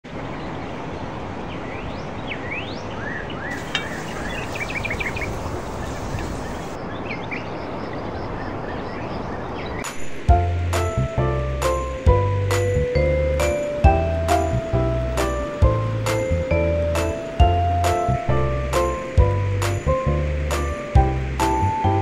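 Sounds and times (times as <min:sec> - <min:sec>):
small birds chirping: 0:00.1 - 0:10.2
outdoor background hiss: 0:00.1 - 0:22.0
music with heavy bass: 0:10.2 - 0:22.0.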